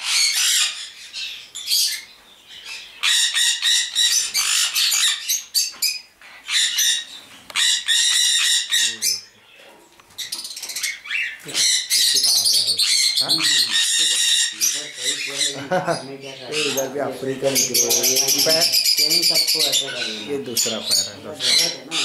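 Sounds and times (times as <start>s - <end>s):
parrot squawking: 0.0s - 2.0s, 2.6s - 9.4s, 10.2s - 22.0s.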